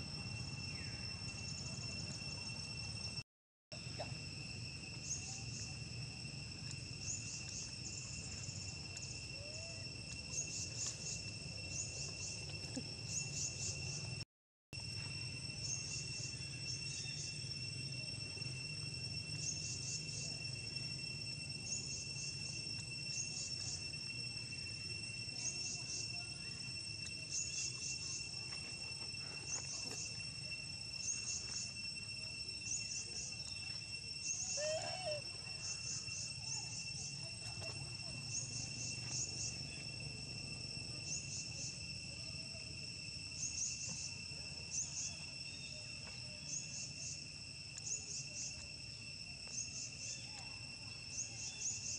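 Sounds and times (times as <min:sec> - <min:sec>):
insects trilling and chirping: 0:00.0 - 0:51.9.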